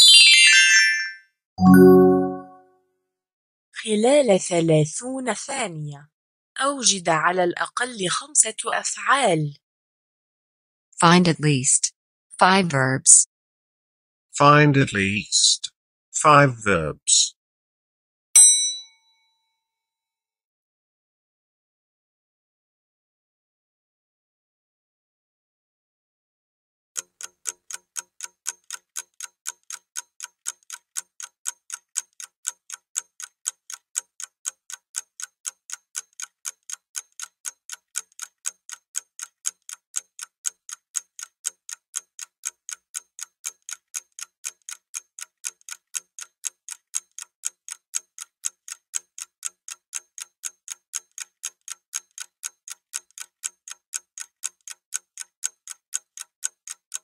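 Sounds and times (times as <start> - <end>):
clock ticking: 27.0 - 57.0.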